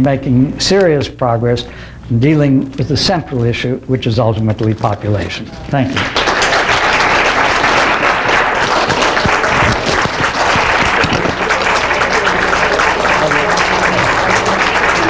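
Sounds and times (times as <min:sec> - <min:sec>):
audience applauding: 0:05.9 - 0:15.0.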